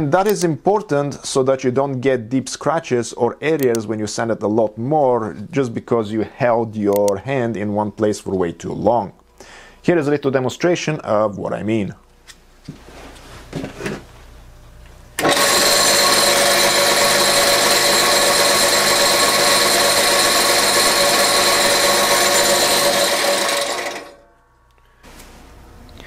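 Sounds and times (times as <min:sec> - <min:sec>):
faint handling sounds: 0:12.2 - 0:15.0
wood lathe whining: 0:15.2 - 0:24.2.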